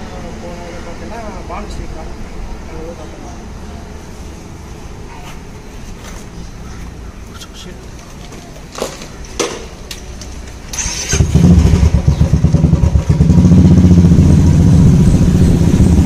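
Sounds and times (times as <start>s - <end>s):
motorcycle engine running: 10.8s - 16.0s.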